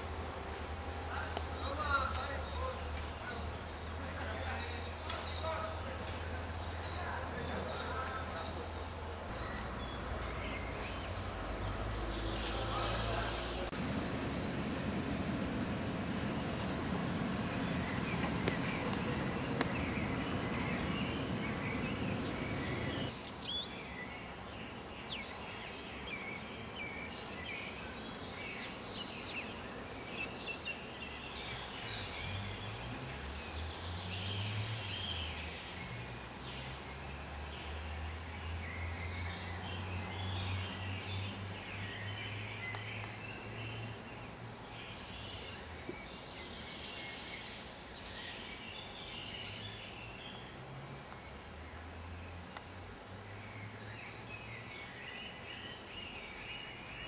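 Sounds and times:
small birds chirping: 0:00.0 - 0:57.0.

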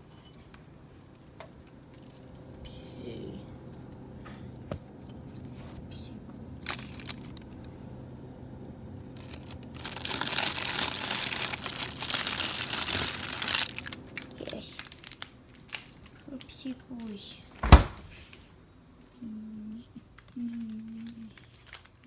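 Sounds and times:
faint steady hum: 0:00.0 - 0:22.0
plastic bags crinkling: 0:06.6 - 0:07.7, 0:09.1 - 0:17.2, 0:20.0 - 0:22.0.

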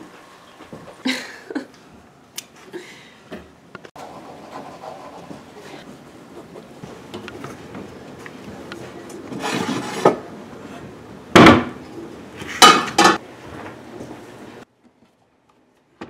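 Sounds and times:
heavy clank of cookware: 0:12.6 - 0:13.2.

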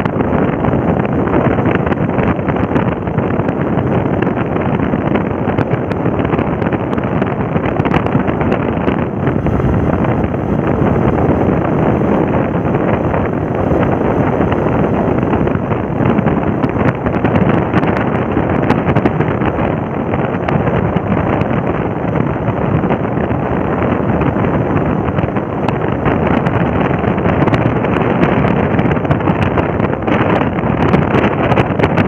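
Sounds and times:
wind rushing over microphone: 0:00.0 - 0:32.0
road noise: 0:05.2 - 0:21.0.

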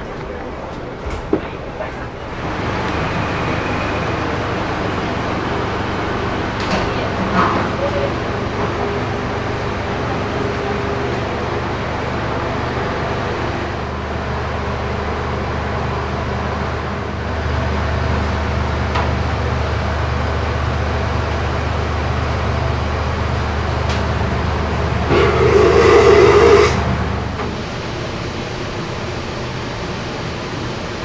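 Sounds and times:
train coach hum and rushing: 0:00.0 - 0:31.0
deep hum: 0:25.0 - 0:27.3.

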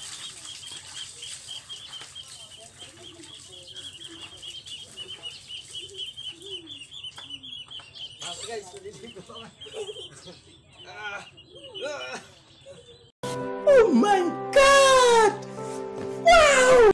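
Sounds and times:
small bird chirping rapidly: 0:00.0 - 0:13.1.

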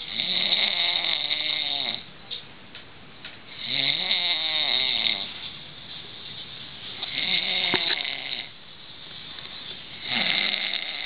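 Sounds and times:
man snoring loudly: 0:00.1 - 0:02.0, 0:03.6 - 0:05.3, 0:07.1 - 0:08.5, 0:10.0 - 0:11.0.

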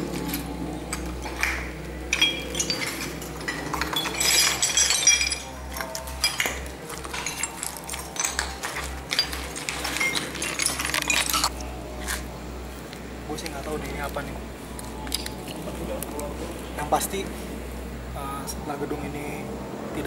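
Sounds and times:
footsteps over broken tile: 0:00.1 - 0:12.2
jingling clinks: 0:00.2 - 0:11.6.

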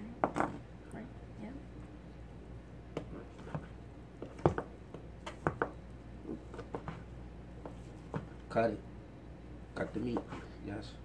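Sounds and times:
knife chopping on cutting board: 0:10.1 - 0:10.4.

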